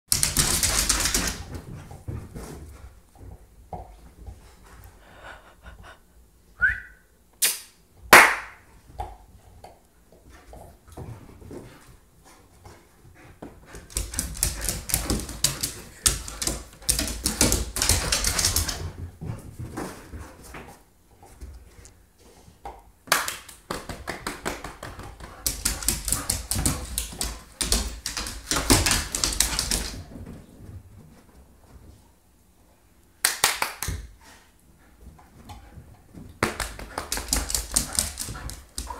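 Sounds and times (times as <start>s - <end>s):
dog claws clattering on wood floor: 0.1s - 1.6s, 13.7s - 19.0s, 36.5s - 38.9s.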